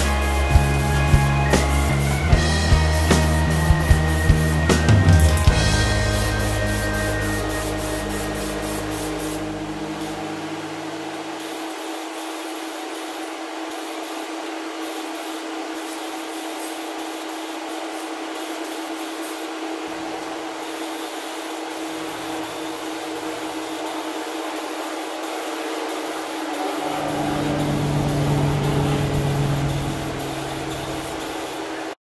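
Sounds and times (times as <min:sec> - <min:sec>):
exhaust fan humming: 0:00.0 - 0:11.4, 0:25.4 - 0:31.9
aerosol spray hissing: 0:06.0 - 0:10.4, 0:11.2 - 0:31.8.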